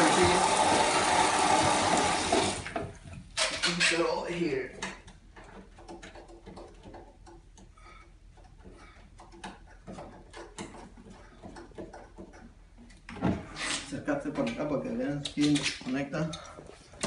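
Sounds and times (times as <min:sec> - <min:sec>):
faint clicks and taps: 0:04.7 - 0:13.3.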